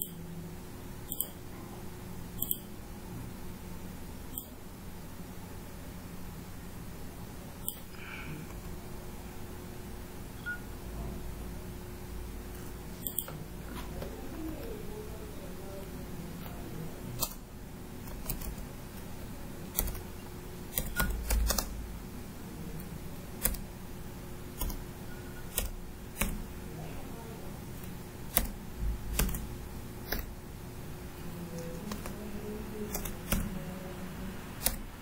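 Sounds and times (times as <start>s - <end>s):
faint steady hum: 0.0s - 35.0s
keyboard keys clicking: 18.0s - 18.6s, 19.7s - 20.0s, 20.7s - 21.8s, 23.4s - 23.7s, 25.5s - 26.4s, 28.3s - 30.3s, 31.6s - 32.2s, 32.9s - 33.5s.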